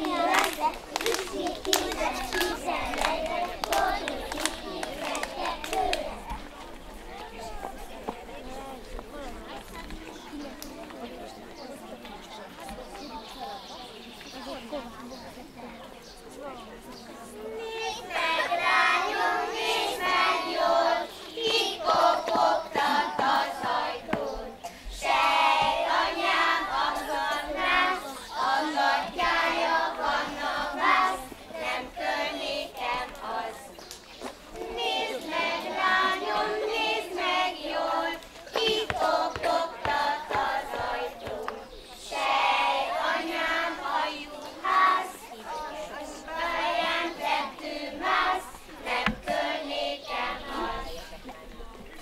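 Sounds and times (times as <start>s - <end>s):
children singing together: 0.0s - 6.3s, 17.6s - 33.9s, 34.6s - 51.3s.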